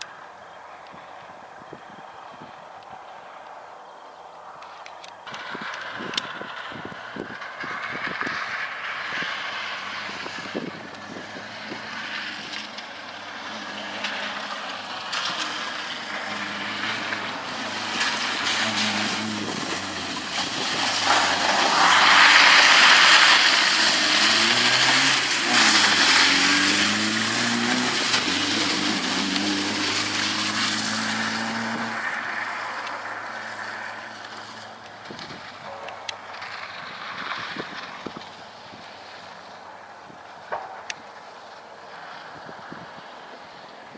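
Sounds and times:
rally car engine revving: 5.3 - 38.4
tyre and spray noise: 7.7 - 39.5.

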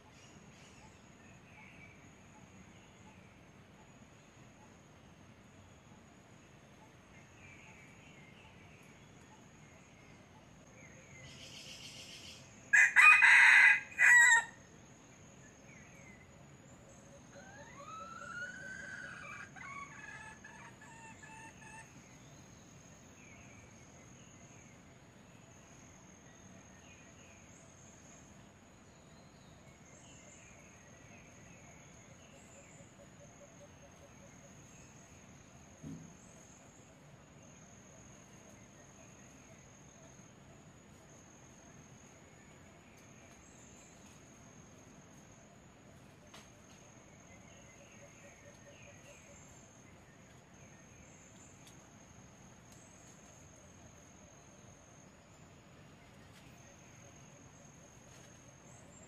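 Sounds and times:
rooster crowing: 12.7 - 14.6.

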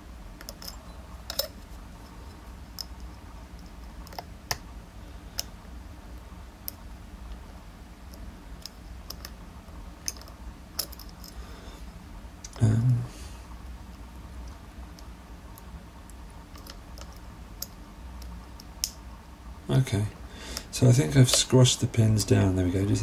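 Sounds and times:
lock pick clicking against pins: 0.4 - 1.6.

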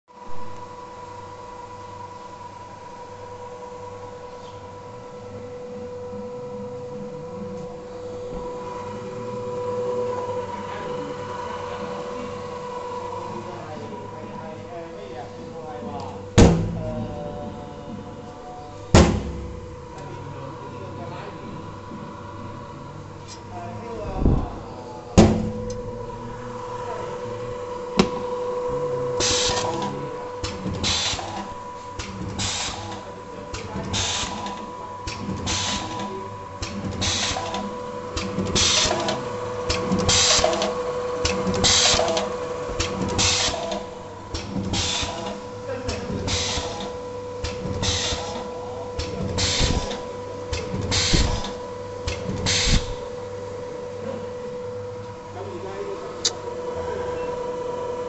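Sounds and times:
machine humming: 0.1 - 58.0.

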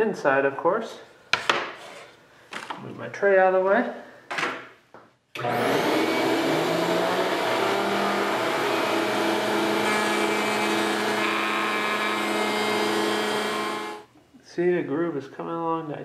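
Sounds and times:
router motor whine cutting wood: 5.4 - 14.0.

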